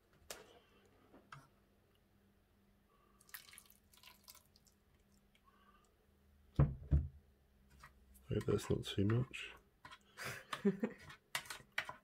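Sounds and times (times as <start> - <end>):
water dripping and splashing: 3.2 - 5.4.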